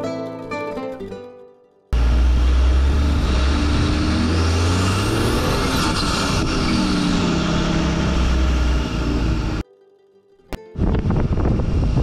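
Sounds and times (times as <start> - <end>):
engine running under load: 2.0 - 9.6.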